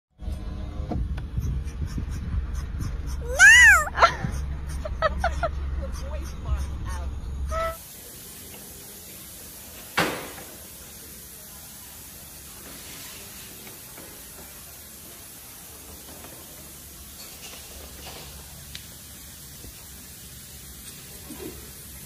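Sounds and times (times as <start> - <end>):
steady hiss: 7.8 - 22.0.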